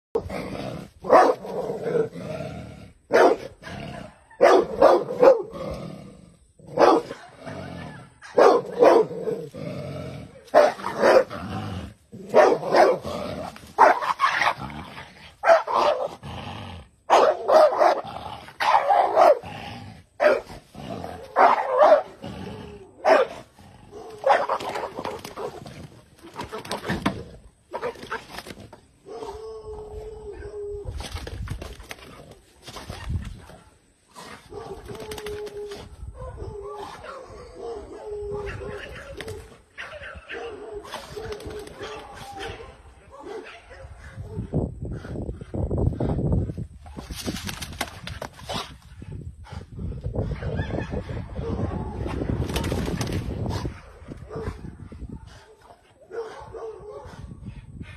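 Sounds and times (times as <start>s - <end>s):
dog barking: 1.1s - 1.4s, 3.1s - 5.5s, 6.8s - 9.2s, 10.5s - 11.3s, 12.3s - 13.0s, 13.8s - 14.2s, 15.4s - 16.1s, 17.1s - 18.0s, 18.6s - 19.4s, 20.2s - 20.5s, 21.3s - 22.2s, 23.0s - 24.7s, 36.2s - 39.2s, 39.8s - 44.4s, 55.4s - 57.2s.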